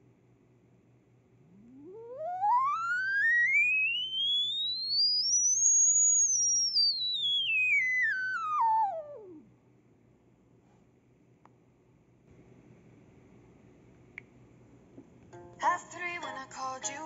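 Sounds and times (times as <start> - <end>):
sine test tone from phone speaker: 1.4 - 9.5.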